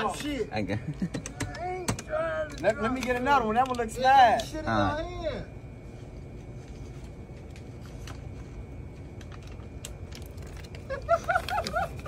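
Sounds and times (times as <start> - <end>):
low interior hum: 0.0 - 12.0
faint clicks and taps: 1.1 - 4.6.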